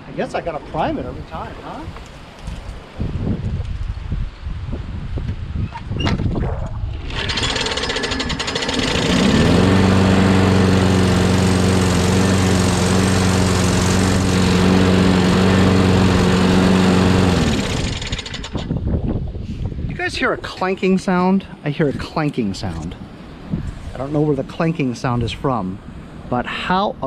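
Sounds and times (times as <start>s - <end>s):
lawnmower engine running: 7.0s - 18.7s.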